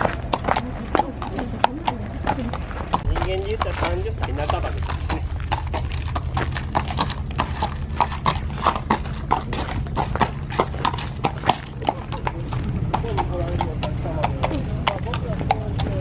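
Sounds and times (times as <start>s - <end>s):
horse hooves clip-clopping: 0.0s - 16.0s
steady low rumble: 0.0s - 16.0s.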